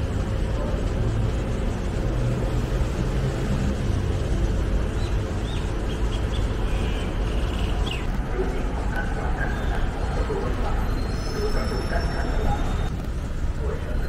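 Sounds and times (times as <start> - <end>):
city road traffic rumble: 0.0 - 14.0.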